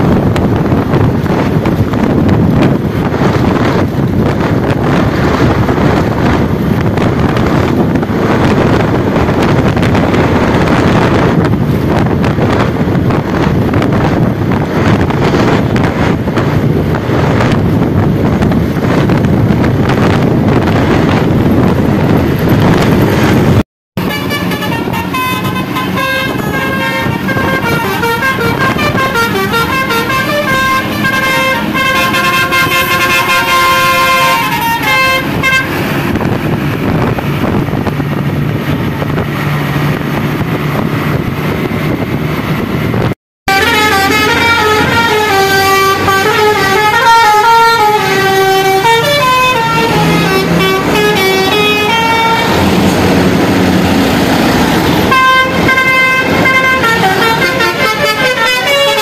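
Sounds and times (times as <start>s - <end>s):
engine and traffic noise: 0.0s - 59.0s
multi-tone bus horn tune: 24.0s - 37.4s, 43.5s - 59.0s.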